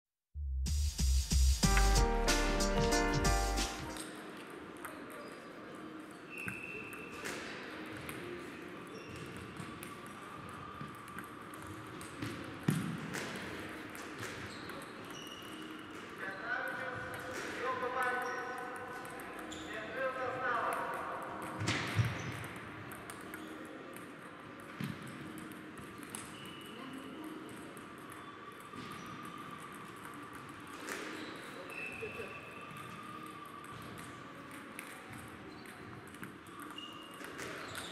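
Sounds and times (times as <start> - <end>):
hall background: 0.8 - 4.0
low hum of sports hall: 4.0 - 37.9
table tennis balls clicking: 20.7 - 26.6, 33.3 - 37.9.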